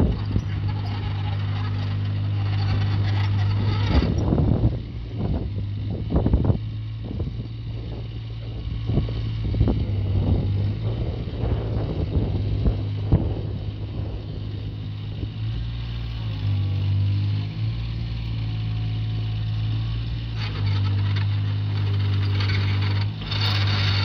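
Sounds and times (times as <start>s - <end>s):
excavator diesel engine running: 0.0s - 24.0s
hydraulics working: 0.0s - 24.0s.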